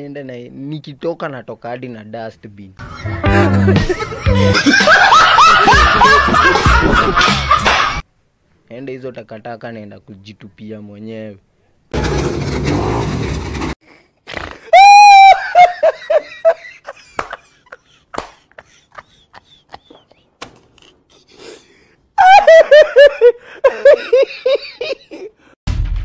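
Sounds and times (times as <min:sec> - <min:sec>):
man laughing loudly: 0:03.3 - 0:08.0, 0:14.6 - 0:20.3, 0:22.2 - 0:25.5.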